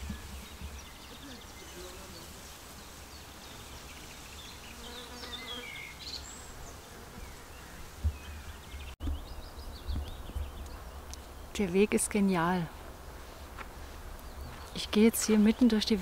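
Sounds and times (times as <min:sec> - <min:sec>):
insect buzzing: 0:01.1 - 0:02.9, 0:04.2 - 0:08.1.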